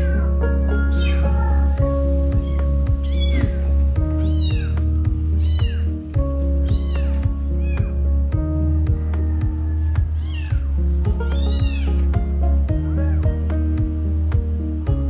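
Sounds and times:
kittens mewing: 0.0 - 1.6, 2.2 - 8.0, 10.2 - 12.3
background music with beat: 0.0 - 15.0.

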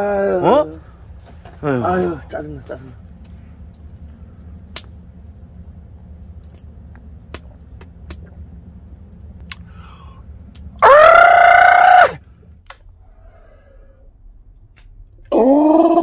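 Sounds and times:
man's high-pitched cry: 10.8 - 12.2.

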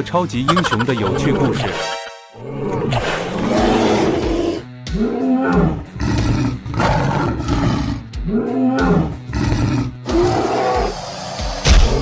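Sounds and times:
dinosaur roars: 2.4 - 12.0.

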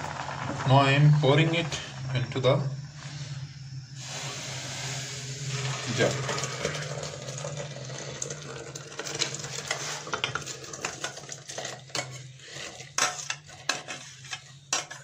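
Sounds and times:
low hum: 0.0 - 9.7
metal clinking and scraping: 9.0 - 15.0.

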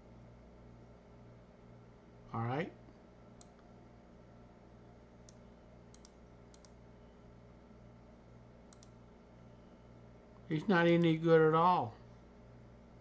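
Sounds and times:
low steady hum: 0.0 - 13.0
faint sharp clicks: 5.2 - 6.8, 8.7 - 9.0.

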